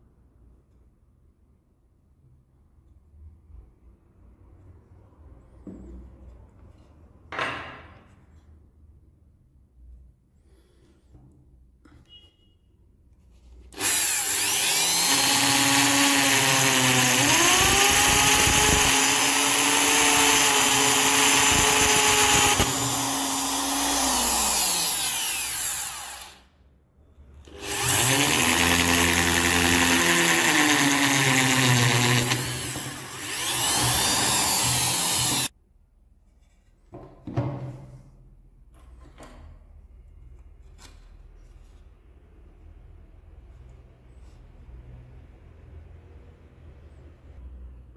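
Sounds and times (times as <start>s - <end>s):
electric drill boring into wood: 13.7s - 26.5s, 27.5s - 35.5s.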